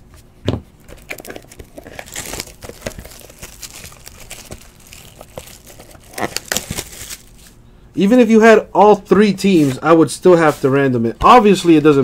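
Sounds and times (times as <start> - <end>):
plastic wrap tearing and crinkling: 0.8 - 7.6.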